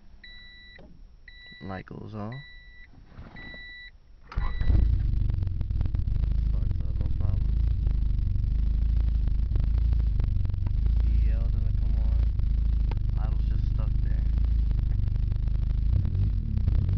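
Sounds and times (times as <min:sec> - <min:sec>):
electronic warning beep: 0:00.2 - 0:04.9.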